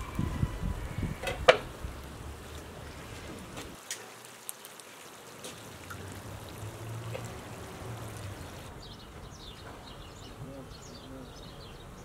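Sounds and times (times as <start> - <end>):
sauce sizzling and bubbling in oil: 0.0 - 8.7
birds chirping: 5.5 - 12.0.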